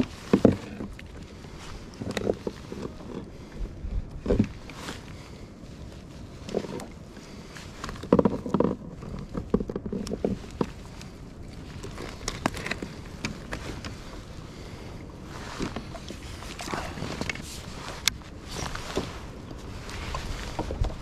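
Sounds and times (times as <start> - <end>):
rustling: 4.2 - 21.0.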